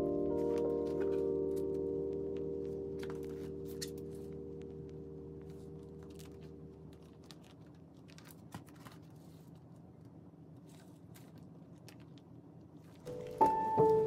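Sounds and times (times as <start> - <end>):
lingering musical tone: 0.0 - 6.9
plastic sleeves crinkling: 5.5 - 14.0.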